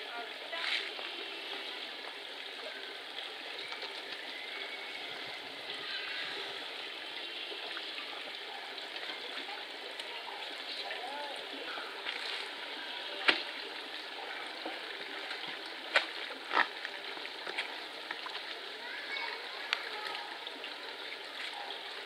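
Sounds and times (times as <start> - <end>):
stream water rushing: 0.0 - 22.0.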